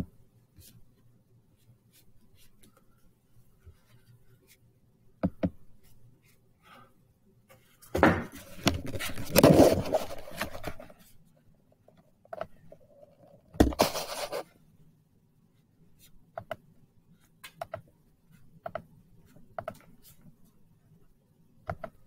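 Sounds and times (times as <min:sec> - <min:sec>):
rubbing and scraping on microphone: 0:07.6 - 0:11.2, 0:12.7 - 0:14.5
knocks on recording device: 0:08.0 - 0:08.4.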